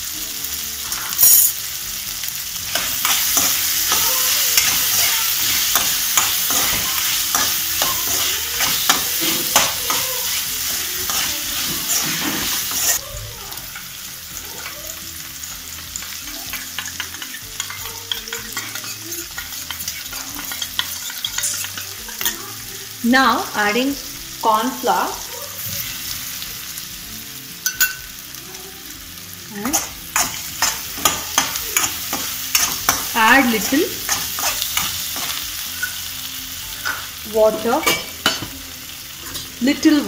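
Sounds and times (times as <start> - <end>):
vegetables sizzling in pan: 0.0 - 40.0
metal spoon scraping pan: 2.7 - 13.0, 16.0 - 22.6, 29.6 - 36.1.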